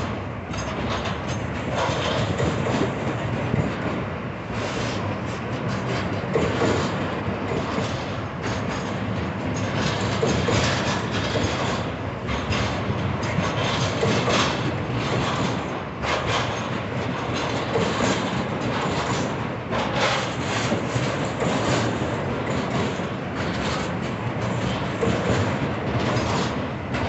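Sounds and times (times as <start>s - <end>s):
freight train rumbling: 0.0s - 27.0s
wheels clacking over rail joints: 0.0s - 27.0s.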